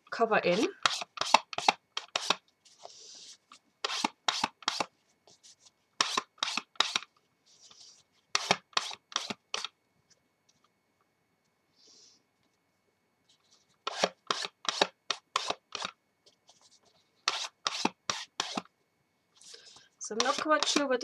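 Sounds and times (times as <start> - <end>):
ink pad scuffing on paper: 0.5 - 9.7, 13.3 - 18.7, 19.5 - 20.9
soft rubbing: 2.5 - 6.6.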